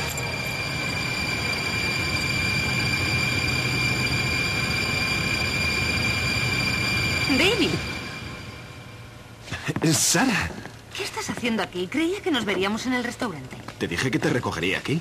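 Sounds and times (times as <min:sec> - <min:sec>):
low rumbling drone: 0:00.0 - 0:09.4
thin high-pitched hum: 0:00.0 - 0:09.4.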